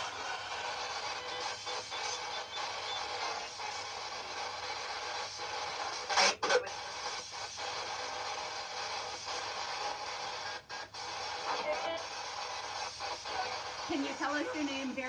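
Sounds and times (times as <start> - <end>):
short burst of radio sound: 0.0 - 7.8
radio static hiss: 0.0 - 15.0.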